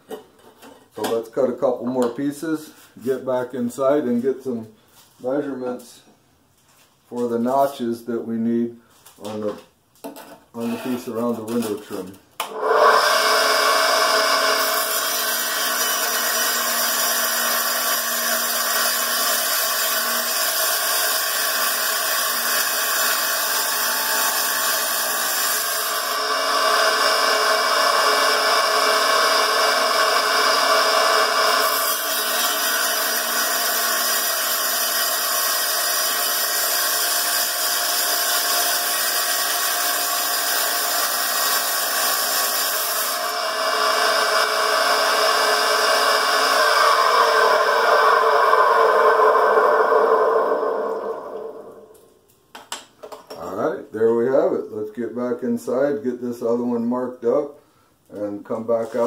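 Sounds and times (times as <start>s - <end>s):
wet tile saw cutting: 12.5s - 51.5s.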